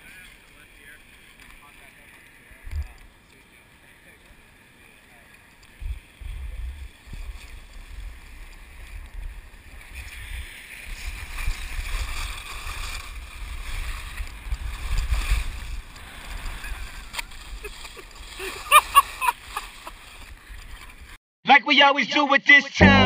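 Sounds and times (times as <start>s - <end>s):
skis scraping over snow: 3.3s - 21.2s
wind buffeting microphone: 5.8s - 18.8s.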